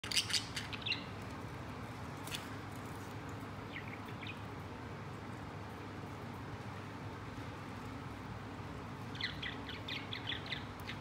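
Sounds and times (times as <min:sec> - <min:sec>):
steady low hum: 0:00.0 - 0:11.0
budgerigar chirping: 0:09.2 - 0:11.0.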